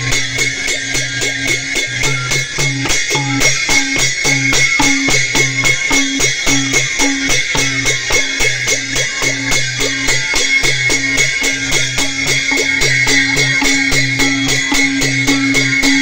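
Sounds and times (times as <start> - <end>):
hand drum played fast: 0.0 - 16.0.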